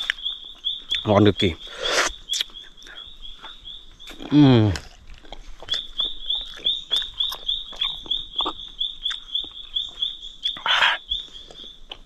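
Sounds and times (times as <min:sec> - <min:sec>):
man chewing with mouth clicks: 0:00.0 - 0:01.1, 0:01.7 - 0:12.0
animal chirping: 0:05.7 - 0:11.8.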